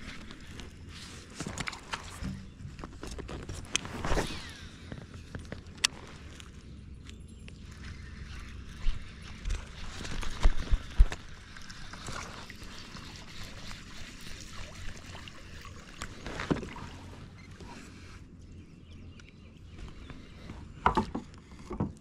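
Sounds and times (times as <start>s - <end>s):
water trickling and lapping: 0.0s - 22.0s.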